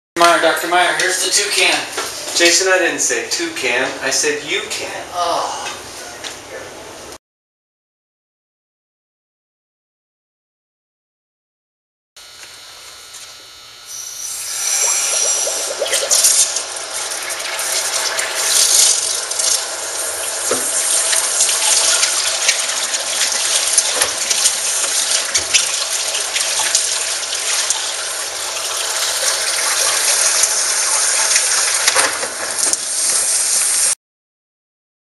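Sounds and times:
hose spraying into plastic bucket: 14.5s - 34.0s.

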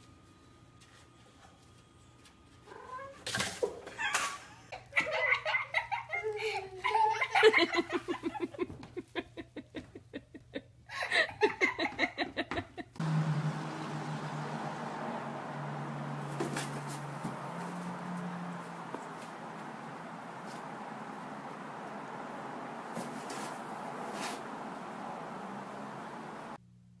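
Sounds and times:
person laughing hard: 4.0s - 13.0s.

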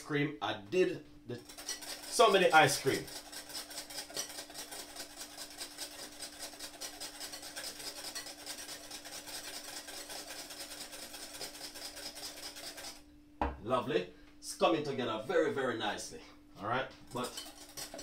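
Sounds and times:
whisk beating cream in glass bowl: 1.4s - 13.0s, 17.1s - 18.0s.

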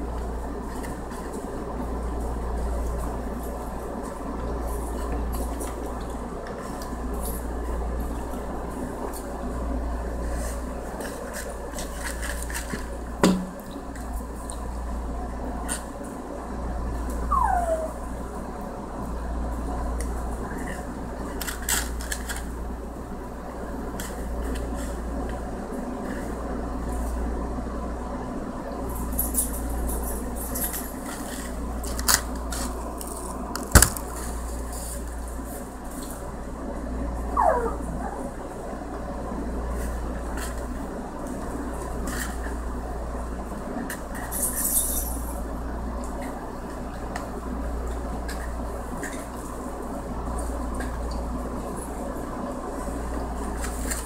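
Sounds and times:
steady low hum: 0.0s - 54.0s
low hum: 16.4s - 21.2s.

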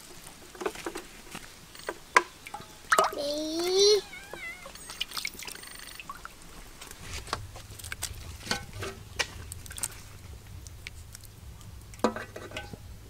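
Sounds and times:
small splashes: 2.2s - 12.1s.

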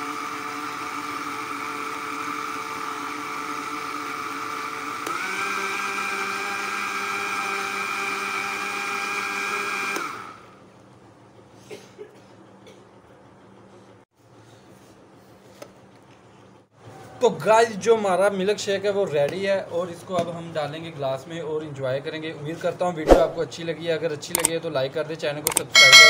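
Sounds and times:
electric blender whirring: 0.0s - 10.6s.

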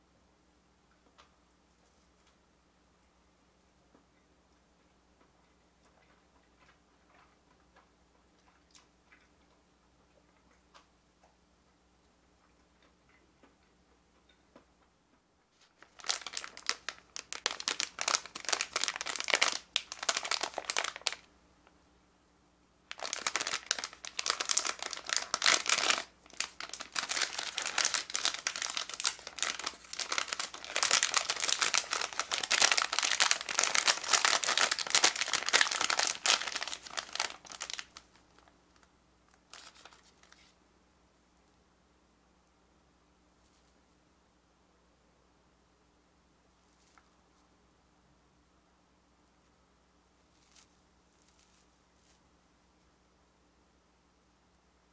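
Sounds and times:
plastic wrapper crinkling: 15.5s - 21.3s, 22.9s - 40.5s, 50.3s - 52.2s.

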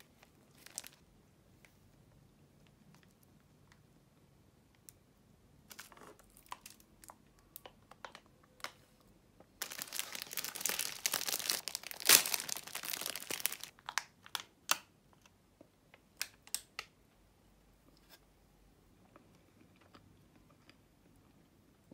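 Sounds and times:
plastic packaging crinkling: 0.0s - 1.0s, 5.7s - 7.7s, 9.6s - 14.4s
plastic wrapper tearing: 0.0s - 1.0s, 9.6s - 14.8s.

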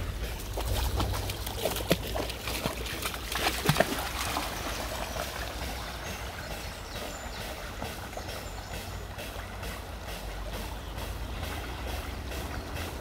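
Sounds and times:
dog splashing through water: 0.0s - 9.9s
trickling stream water: 0.0s - 13.0s.

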